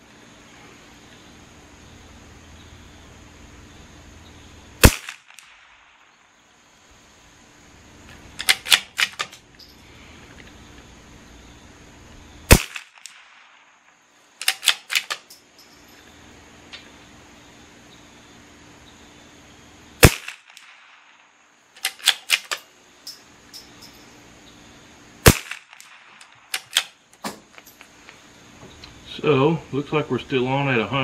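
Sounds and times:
rifle shots: 4.8 - 6.2, 8.4 - 9.3, 12.5 - 13.7, 14.4 - 15.2, 20.0 - 21.2, 25.2 - 26.9
rifle bolt metallic clicks: 8.4 - 9.4, 14.4 - 15.4, 21.8 - 23.7, 25.3 - 27.8.

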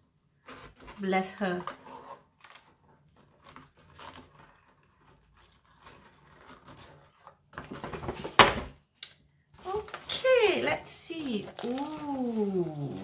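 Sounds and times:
paper bag crinkling: 0.5 - 8.4, 9.6 - 13.0
ribbon rustling: 9.6 - 13.0.

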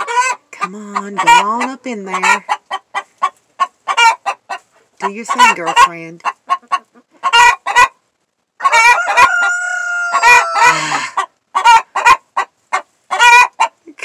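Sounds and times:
hen squawking and clucking: 0.0 - 14.0
rooster crowing: 8.6 - 11.2.

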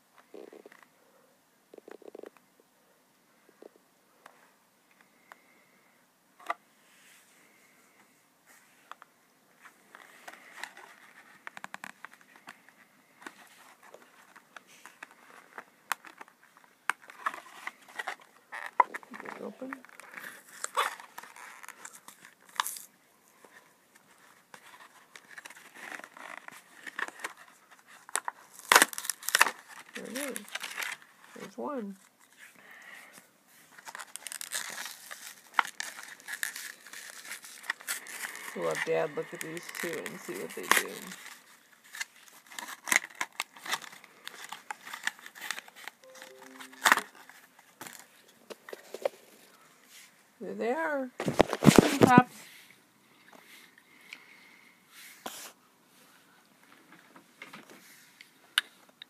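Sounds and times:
plastic packaging crackling: 9.9 - 32.4, 33.7 - 49.4.

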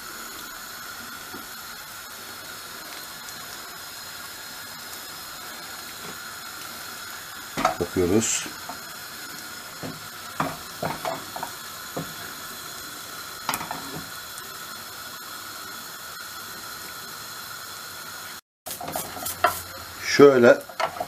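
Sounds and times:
crepe frying hiss: 0.0 - 21.0
spatula scraping a pan: 9.8 - 12.4, 18.7 - 21.0.

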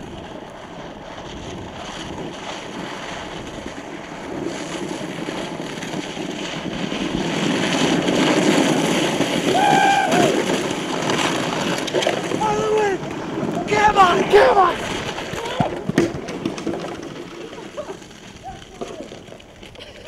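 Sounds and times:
scraping over ice: 0.0 - 20.0
person yelling: 9.5 - 10.4, 13.6 - 14.8.

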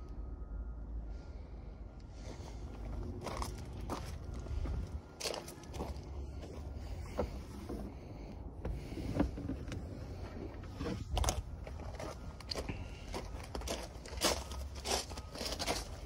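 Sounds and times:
footsteps crunching on gravel: 2.3 - 7.4, 10.7 - 16.0.

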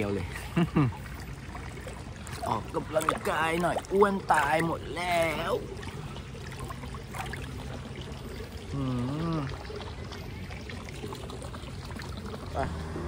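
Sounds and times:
pool water trickling and pouring: 0.0 - 13.0
man humming: 8.7 - 9.6.

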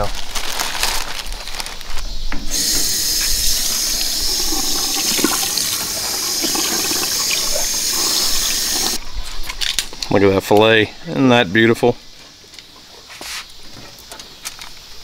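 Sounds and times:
faucet water splashing into sink: 2.5 - 9.0.

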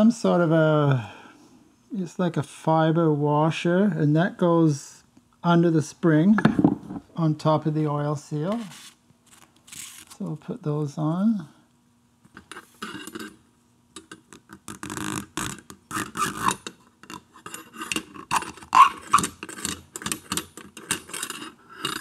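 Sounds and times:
metal spring clicking and scraping: 12.3 - 13.4, 14.0 - 22.0.

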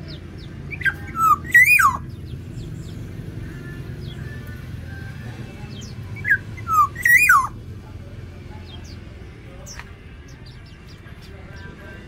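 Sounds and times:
oriole fluty whistled call: 0.7 - 2.1, 4.0 - 7.6.

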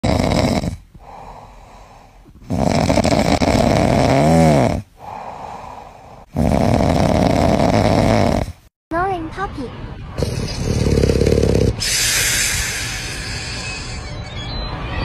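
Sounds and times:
dog snoring: 0.0 - 8.6, 10.2 - 13.0
whistling snore tone: 10.2 - 15.0.

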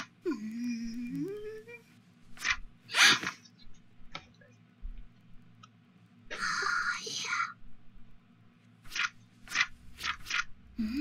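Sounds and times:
person humming wordlessly: 0.2 - 1.9, 10.8 - 11.0.

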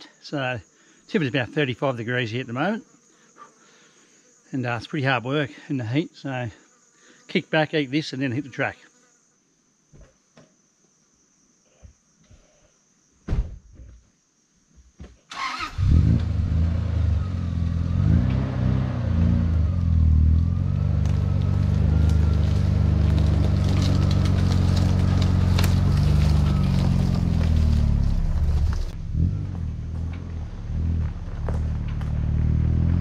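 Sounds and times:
car engine starting and running: 15.3 - 33.0.

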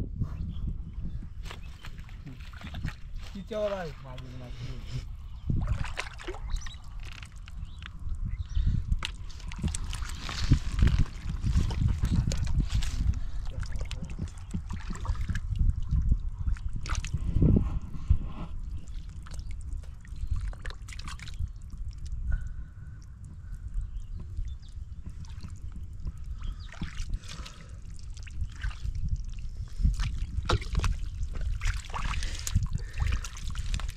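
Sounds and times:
steady low rumble: 0.0 - 33.9
hands sloshing in muddy water: 1.4 - 8.0, 8.9 - 17.3, 18.8 - 22.1, 25.1 - 33.9.

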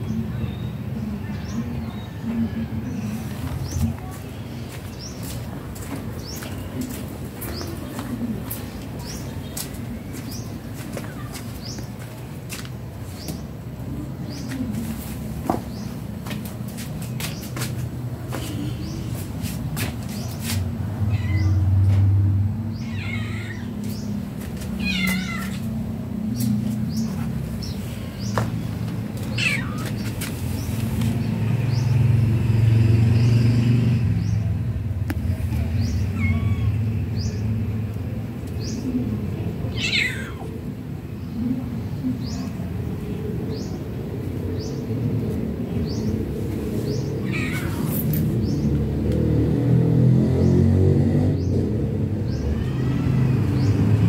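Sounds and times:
cat meowing: 21.1 - 21.6, 22.8 - 23.8, 24.8 - 25.6, 29.3 - 29.9, 36.1 - 36.9, 39.7 - 40.6, 47.2 - 48.1.

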